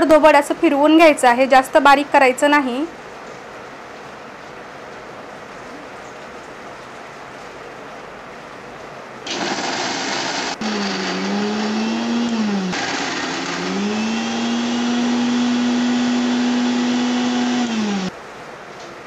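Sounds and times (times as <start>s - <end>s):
mixer grinder motor whining: 9.3s - 18.1s.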